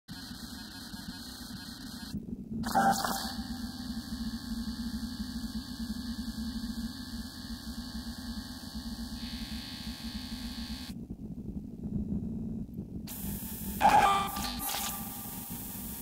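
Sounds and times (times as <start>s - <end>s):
low hum: 0.4s - 16.0s
chaotic noisy synthesizer drone: 2.6s - 6.3s, 13.1s - 16.0s.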